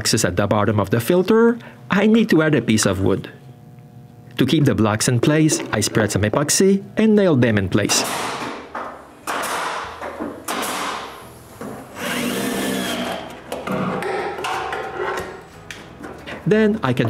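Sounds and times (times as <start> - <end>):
cordless drill driving screws: 12.0 - 13.3.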